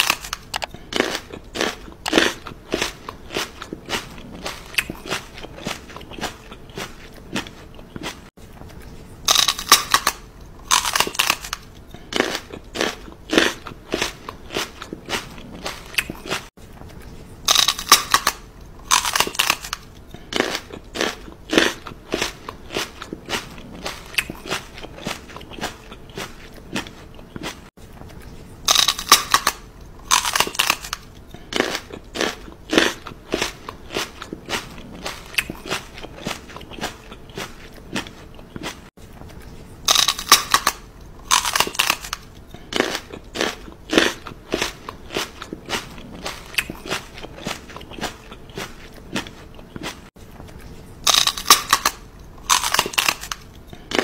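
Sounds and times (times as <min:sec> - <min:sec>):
crisp crunching bites: 0:00.0 - 0:16.5, 0:17.4 - 0:27.6, 0:28.6 - 0:38.8, 0:39.4 - 0:50.0, 0:50.6 - 0:54.0.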